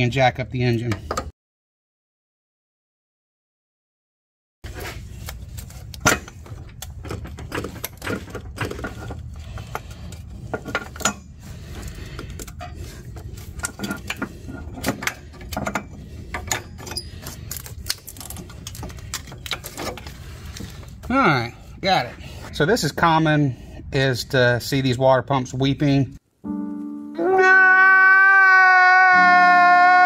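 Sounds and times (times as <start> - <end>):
metallic clinks and scrapes: 4.7 - 21.0.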